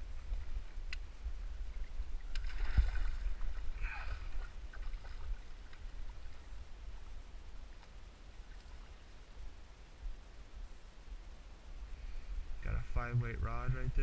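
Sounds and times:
steady low rumble: 0.0 - 14.0
fish splashing in water: 2.2 - 5.4.

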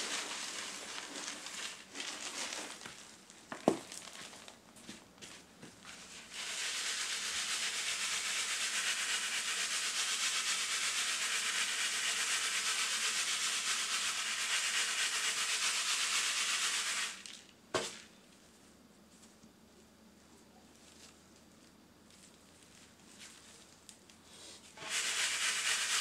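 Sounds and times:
charcoal rattling in a sieve: 0.0 - 4.9, 5.8 - 18.2, 24.8 - 26.0.

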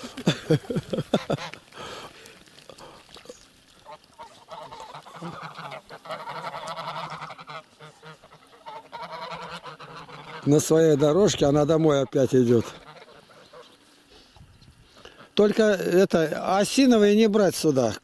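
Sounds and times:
geese honking: 0.0 - 15.5.

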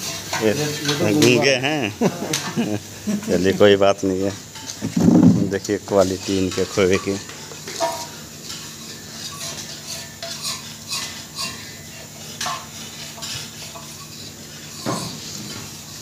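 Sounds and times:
metal utensils clinking: 0.0 - 1.6, 5.7 - 16.0.

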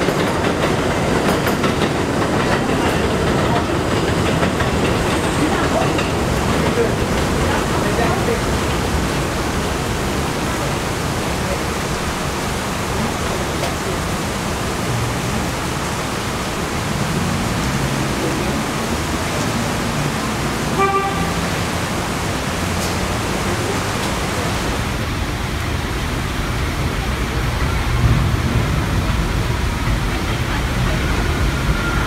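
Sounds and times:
elevated train rumble: 0.0 - 32.0
rain hissing: 0.0 - 32.0
train horn toot: 20.7 - 21.7.

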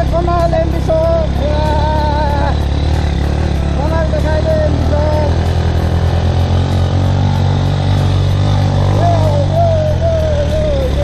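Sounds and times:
motorcycle engine droning: 0.0 - 11.0
wavering melodic line: 0.0 - 11.0.

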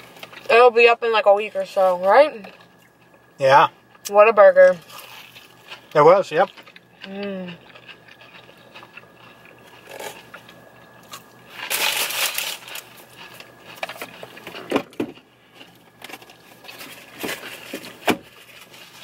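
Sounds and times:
biting and chewing food: 0.0 - 0.6, 1.4 - 4.1, 4.7 - 19.0
crunchy bite: 4.8 - 19.0.

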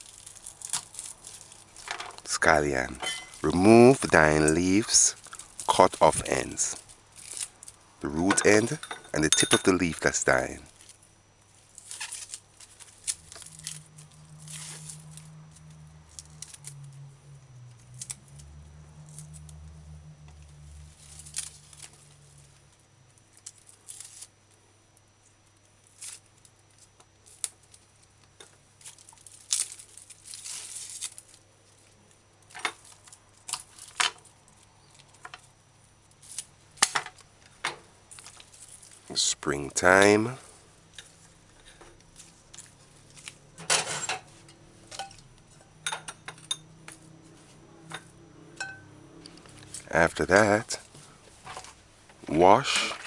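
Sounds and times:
dry leaves tearing and rustling: 0.0 - 2.0, 2.8 - 8.2, 10.3 - 22.6, 23.3 - 24.3, 25.8 - 32.2, 32.8 - 37.3, 38.1 - 39.3, 42.0 - 43.5
low hum: 12.6 - 23.0, 37.8 - 51.2.

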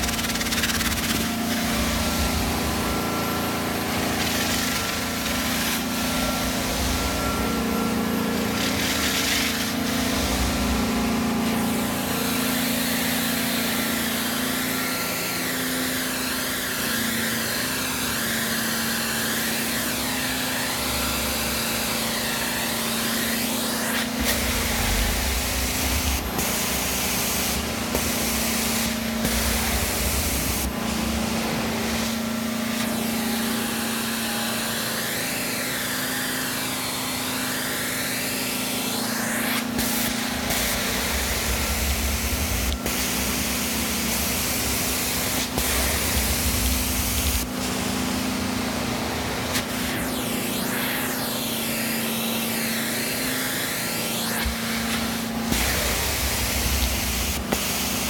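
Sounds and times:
extraction machine humming: 0.0 - 58.0
suction hiss: 21.7 - 36.6, 37.2 - 48.8, 49.4 - 58.0.

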